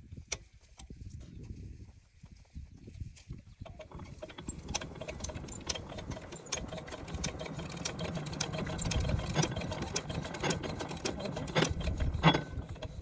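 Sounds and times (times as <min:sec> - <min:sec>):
engine crank mechanical clatter: 0:03.6 - 0:13.0
low engine rumble: 0:03.7 - 0:13.0.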